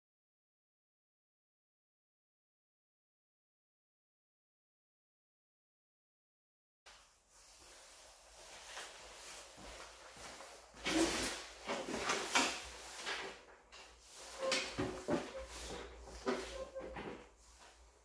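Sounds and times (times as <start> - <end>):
clothes rustling: 6.9 - 18.0.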